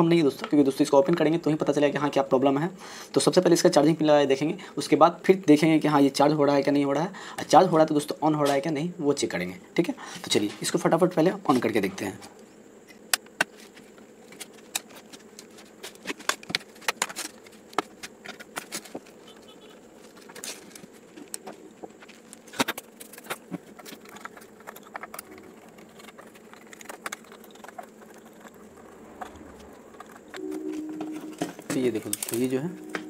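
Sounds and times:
screwdriver working on screws: 0:22.6 - 0:29.4.

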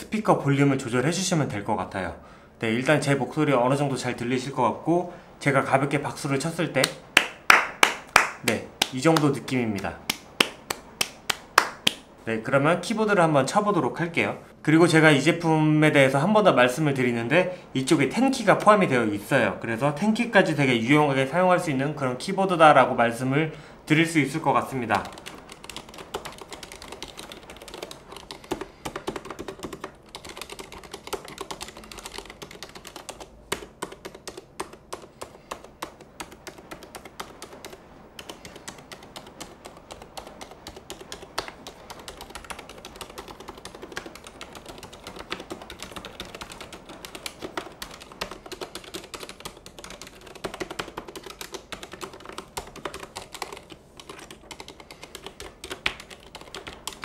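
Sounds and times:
fast typing on keyboard: 0:17.8 - 0:19.0, 0:24.6 - 0:57.0.

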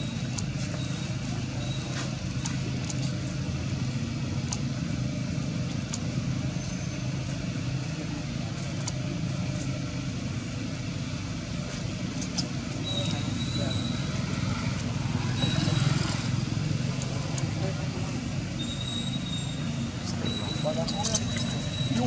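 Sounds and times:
low background rumble: 0:00.0 - 0:15.6.

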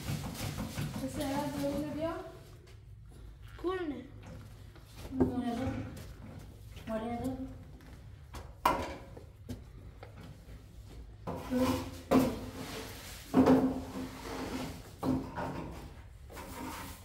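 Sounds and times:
scraping or rubbing: 0:11.3 - 0:15.0, 0:16.3 - 0:17.0.

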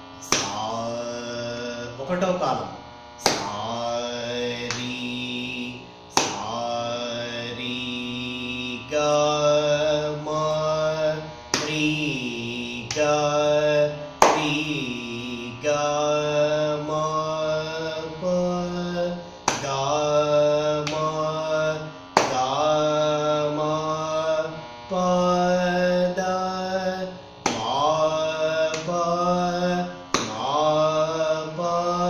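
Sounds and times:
man singing syllables: 0:00.0 - 0:32.0
sharp hand claps: 0:00.2 - 0:00.6, 0:03.2 - 0:03.7, 0:04.6 - 0:05.0, 0:06.1 - 0:06.6, 0:11.5 - 0:11.8, 0:12.8 - 0:13.1, 0:14.2 - 0:14.6, 0:19.4 - 0:19.8, 0:20.8 - 0:21.2, 0:22.2 - 0:22.6, 0:27.4 - 0:27.8, 0:30.1 - 0:30.5.

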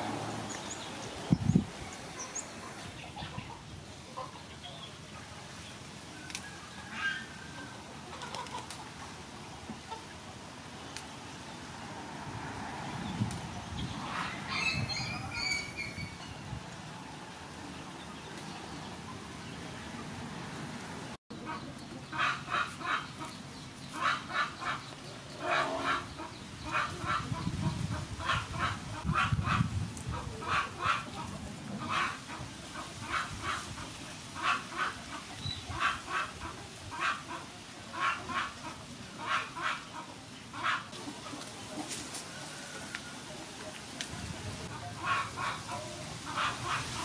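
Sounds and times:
poultry calling: 0:21.4 - 0:41.0, 0:44.7 - 0:47.0.

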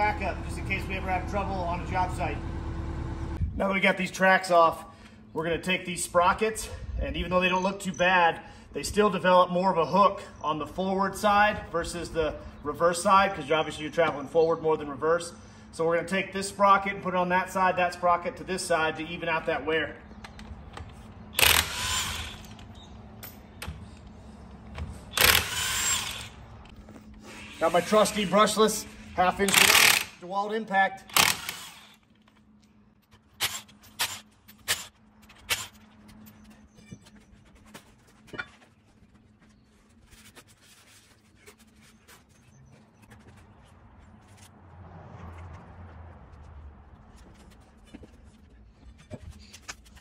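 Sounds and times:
rubbing and scratching: 0:35.5 - 0:44.6, 0:47.2 - 0:50.0.

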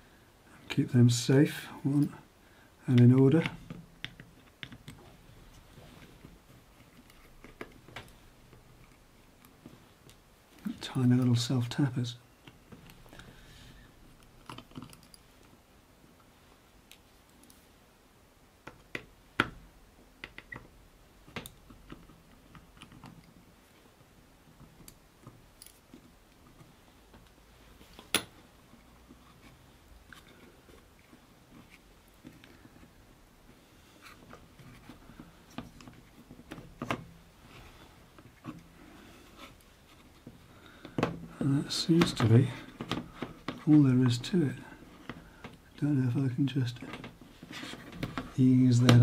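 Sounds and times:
clicks and taps handling electronics: 0:02.9 - 0:05.2, 0:20.2 - 0:23.4, 0:39.5 - 0:44.4.

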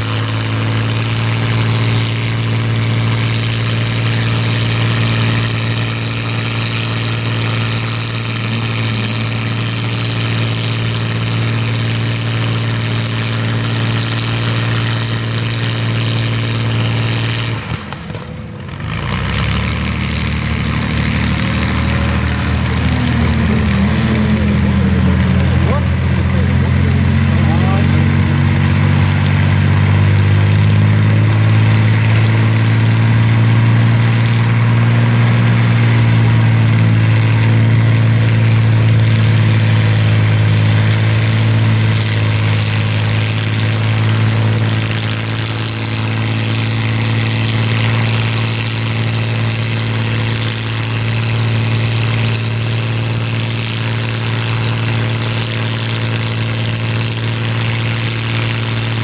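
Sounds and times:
aircraft propeller engine droning: 0:00.0 - 0:59.0.

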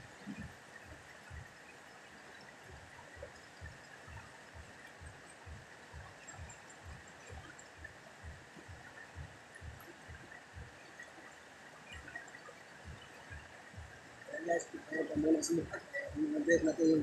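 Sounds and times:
soft low thump: 0:00.2 - 0:00.6.

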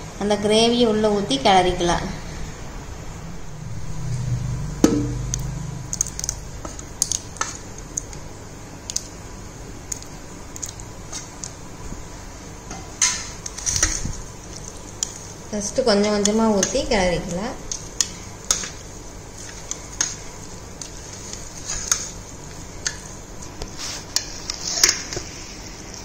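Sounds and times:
low rumble: 0:02.4 - 0:06.6.

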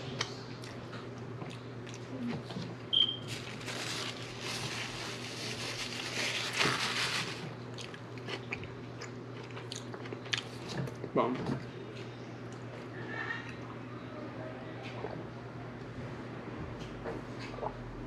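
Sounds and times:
person chewing food: 0:00.2 - 0:02.7, 0:07.7 - 0:11.0
paper napkin rustling: 0:03.2 - 0:07.5.

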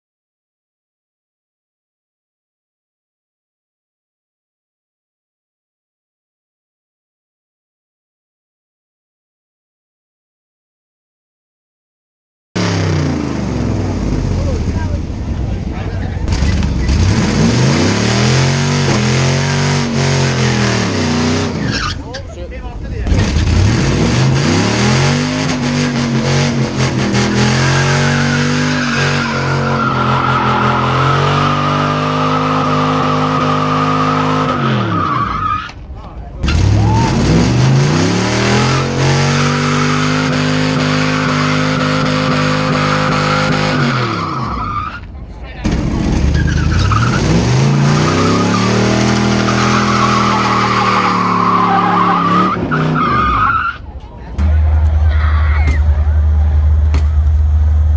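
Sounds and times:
car engine revving: 0:12.6 - 0:22.0, 0:22.8 - 0:35.0, 0:36.4 - 0:44.7, 0:45.6 - 0:53.4, 0:54.4 - 0:57.9
tyre squeal: 0:21.5 - 0:22.3, 0:48.0 - 0:53.9.

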